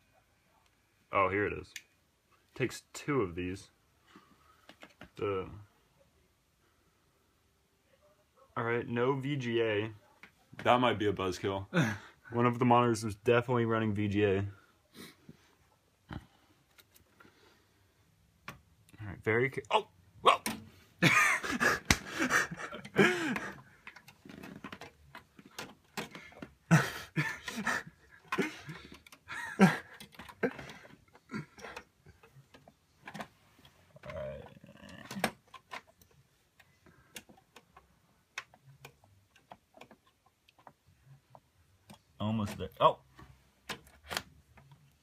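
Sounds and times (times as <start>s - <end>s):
person straining vocal sounds: 19.7s - 20.6s, 34.0s - 35.4s.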